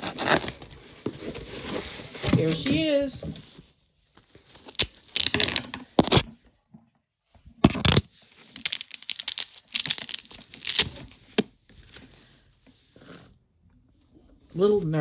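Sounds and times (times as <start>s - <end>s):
packaging tearing and crinkling: 0.0s - 0.6s, 4.6s - 6.3s, 7.7s - 11.2s.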